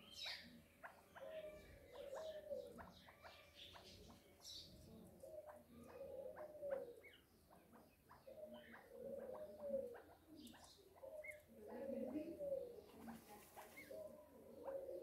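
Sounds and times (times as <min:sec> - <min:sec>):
low drawn-out bird calls: 0:00.0 - 0:11.6
partridge chicks peeping: 0:00.0 - 0:15.0.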